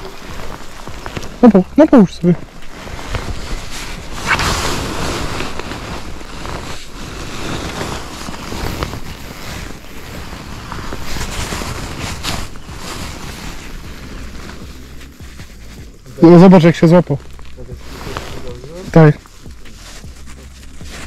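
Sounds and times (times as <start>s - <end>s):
wind buffeting microphone: 2.3s - 16.2s
rustling of landing net: 2.4s - 16.1s.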